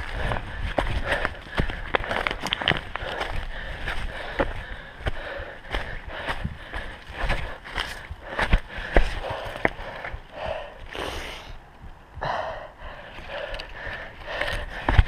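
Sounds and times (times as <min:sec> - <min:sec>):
footsteps on rocky ground: 0:00.0 - 0:10.7, 0:12.9 - 0:15.0
runner breathing hard: 0:00.0 - 0:11.6, 0:12.2 - 0:15.0
heavy gasps: 0:12.2 - 0:15.0.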